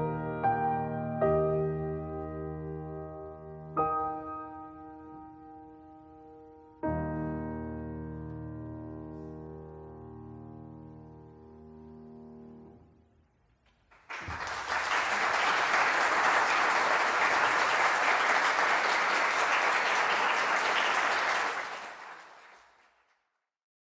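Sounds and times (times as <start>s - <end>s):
audience applauding: 13.8s - 23.2s.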